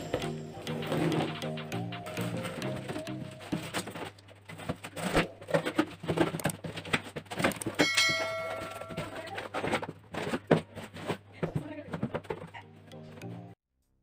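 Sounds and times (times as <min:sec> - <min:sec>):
bell chime: 0:00.0 - 0:03.5, 0:07.8 - 0:09.2
cardboard rustling: 0:02.2 - 0:07.8, 0:08.5 - 0:12.6.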